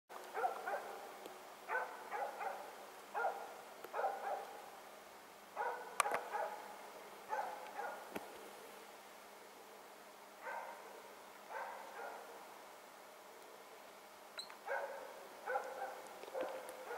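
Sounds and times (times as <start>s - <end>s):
dog barking: 0.3s - 1.1s, 1.7s - 4.5s, 5.6s - 6.7s, 7.3s - 8.1s, 10.4s - 10.9s, 11.5s - 12.4s, 14.6s - 16.9s.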